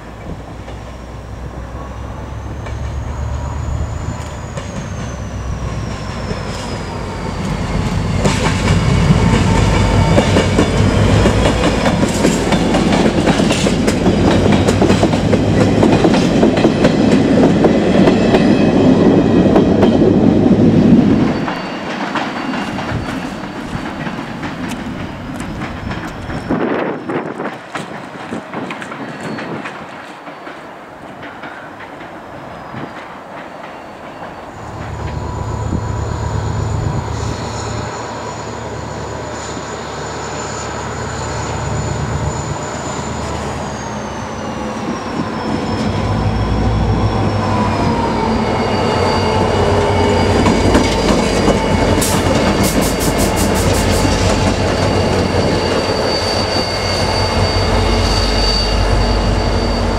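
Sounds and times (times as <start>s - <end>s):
diesel locomotive engine throb: 34.6s - 59.9s.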